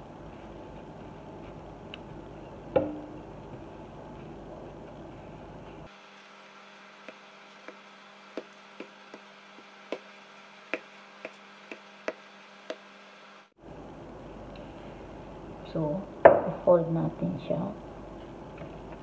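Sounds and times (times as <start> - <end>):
rolling pin rolling dough: 0.0 - 12.9.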